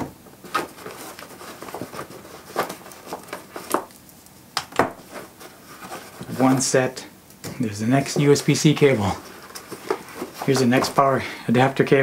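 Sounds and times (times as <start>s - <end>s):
cloth rustling: 0.4s - 4.1s, 5.0s - 6.8s, 7.9s - 11.2s.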